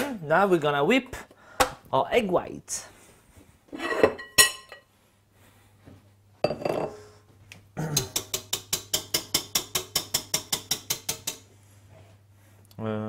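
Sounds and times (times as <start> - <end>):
glass bowl clinking: 3.8 - 4.9, 6.4 - 7.0
whisk clattering in saucepan: 8.2 - 11.4.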